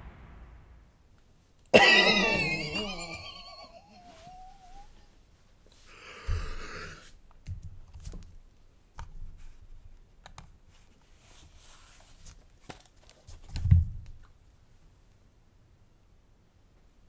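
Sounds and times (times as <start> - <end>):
low thumps: 0.0 - 1.1.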